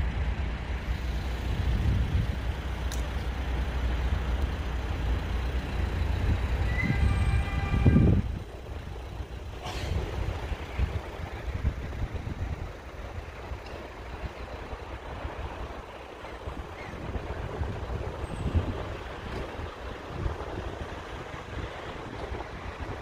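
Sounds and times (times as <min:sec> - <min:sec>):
road traffic rumble: 0:00.0 - 0:23.0
brief high squeal: 0:06.6 - 0:08.2.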